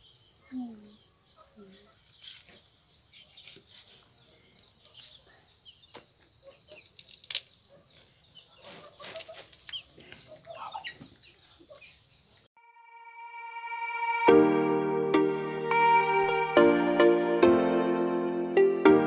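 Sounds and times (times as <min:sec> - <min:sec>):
chickens clucking: 0:01.2 - 0:07.0, 0:07.7 - 0:12.2.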